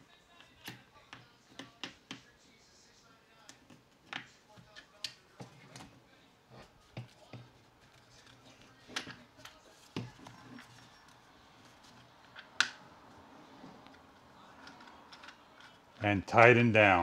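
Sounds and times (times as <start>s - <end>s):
plastic and metal parts clicking: 13.8s - 16.0s.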